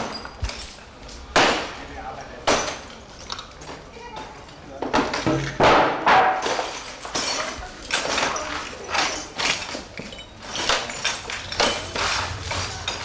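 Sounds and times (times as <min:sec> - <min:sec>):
hard objects knocking and clattering: 0:04.8 - 0:13.0.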